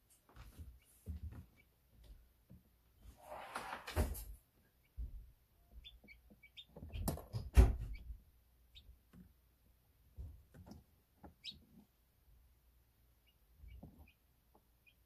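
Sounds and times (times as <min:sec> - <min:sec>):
chicks peeping: 0:00.6 - 0:02.0, 0:04.6 - 0:15.0.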